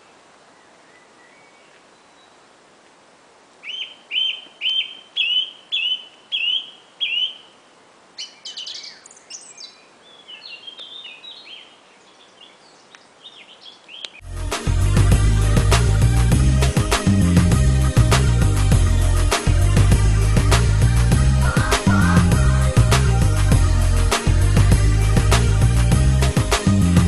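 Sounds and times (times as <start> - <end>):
songbird singing: 0.0 - 2.6, 3.5 - 14.3, 20.2 - 25.7
music with heavy beat: 14.4 - 27.0.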